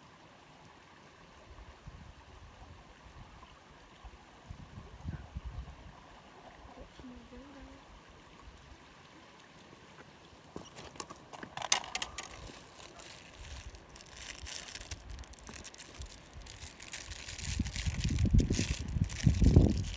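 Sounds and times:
microphone handling noise: 11.6 - 19.9.

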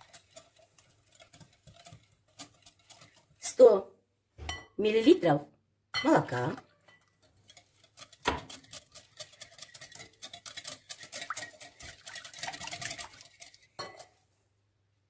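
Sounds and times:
whisk beating batter in glass bowl: 0.0 - 3.8, 6.3 - 14.2.

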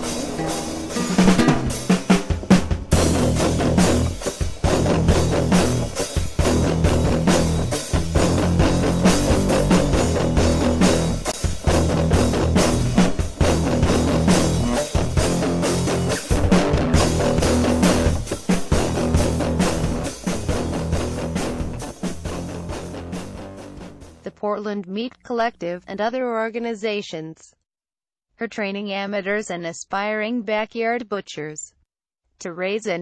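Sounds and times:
rock music with guitar and drums: 0.0 - 24.2.

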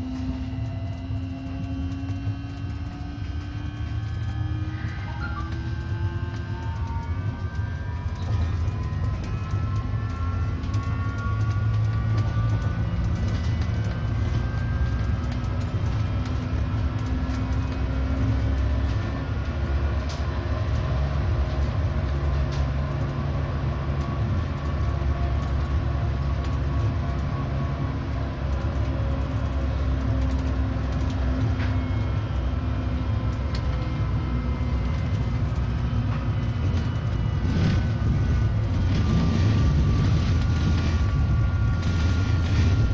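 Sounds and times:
faint whining tone: 0.0 - 19.0, 30.9 - 42.9
tram wheels rumbling on rail: 0.0 - 42.9.

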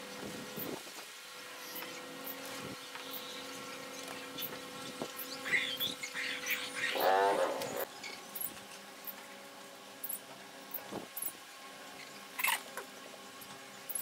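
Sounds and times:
steady low hum: 0.0 - 14.0
animal call: 5.4 - 7.9.

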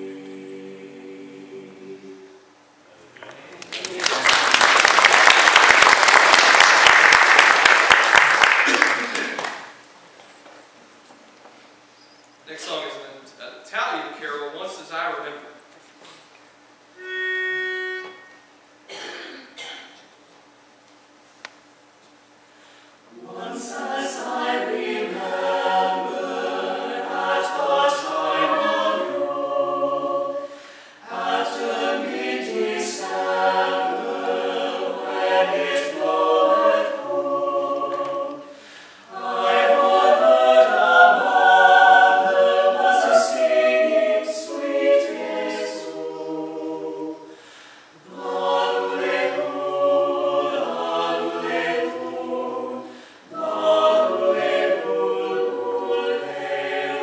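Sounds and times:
mixed choir singing a cappella: 0.0 - 2.5, 23.1 - 57.0.

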